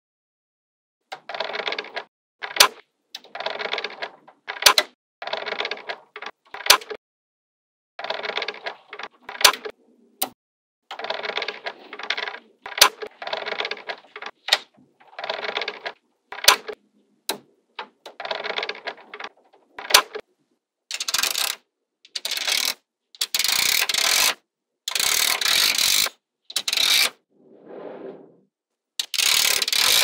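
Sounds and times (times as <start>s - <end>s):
magnetic balls clicking together: 20.9s - 27.2s, 29.0s - 30.0s
magnetic balls rattling: 29.0s - 30.0s.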